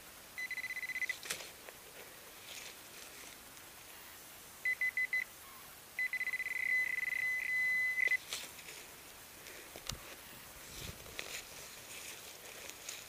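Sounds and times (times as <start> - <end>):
metal detector probe beeping: 0.4 - 1.2, 4.7 - 5.3, 6.0 - 8.2.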